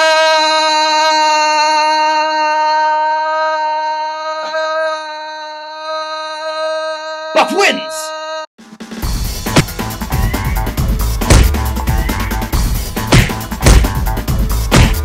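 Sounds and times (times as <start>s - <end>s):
man yelling: 7.3s - 8.5s.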